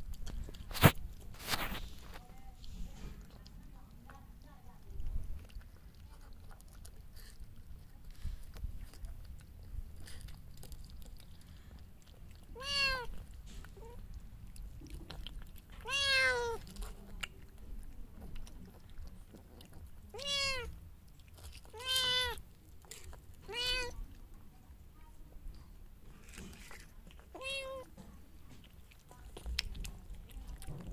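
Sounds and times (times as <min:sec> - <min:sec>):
cat meowing: 0:12.6 - 0:13.2, 0:15.8 - 0:16.6, 0:20.1 - 0:20.8, 0:21.7 - 0:22.4, 0:23.5 - 0:24.0, 0:27.3 - 0:27.9.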